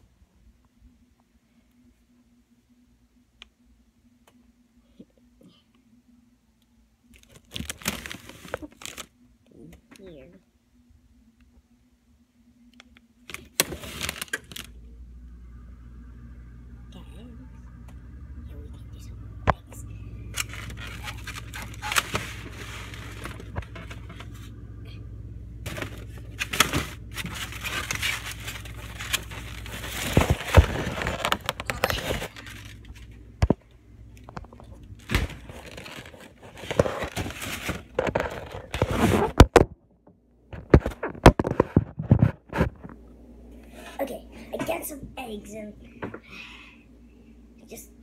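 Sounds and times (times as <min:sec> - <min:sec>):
steady low hum: 0:00.0 - 0:48.0
handling scraping and rustling: 0:20.3 - 0:24.6, 0:25.6 - 0:33.6, 0:34.3 - 0:39.6.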